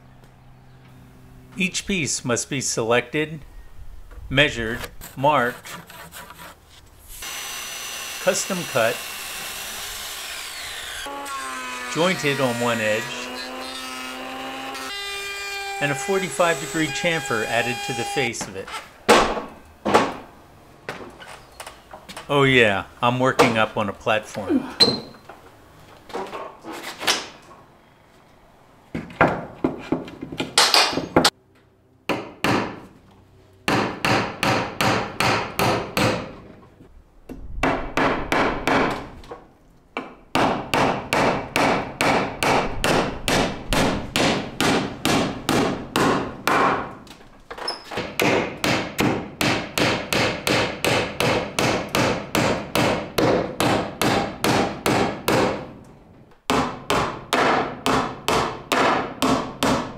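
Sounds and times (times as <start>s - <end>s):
hammer driving nails into wood: 29.0s - 31.3s, 33.7s - 36.4s, 37.6s - 39.1s, 40.0s - 46.9s, 48.0s - 55.7s, 56.5s - 59.9s.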